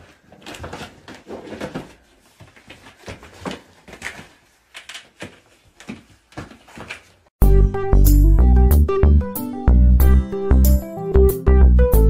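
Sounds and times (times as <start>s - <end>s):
kitten scrambling on foam mats: 0.0s - 7.3s.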